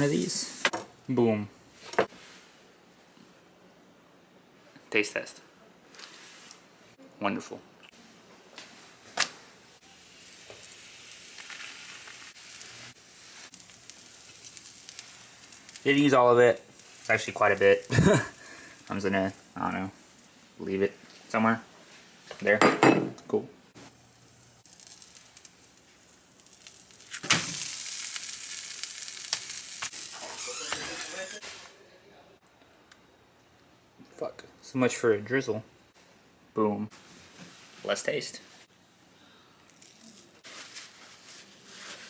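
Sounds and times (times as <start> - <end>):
food sizzling in frying pan: 0.0 - 0.8, 9.8 - 21.2, 23.8 - 31.7.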